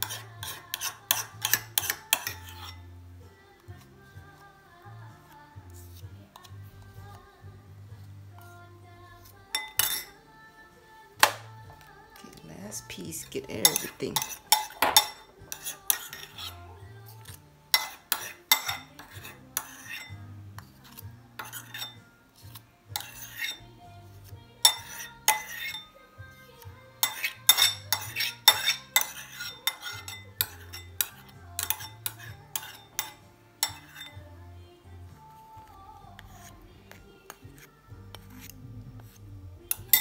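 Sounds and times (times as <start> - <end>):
metal utensils clinking on dishes: 0.0 - 2.8, 9.5 - 10.2, 13.1 - 16.6, 17.3 - 20.2, 20.9 - 23.6, 24.6 - 26.0, 27.0 - 34.3, 39.7 - 40.0.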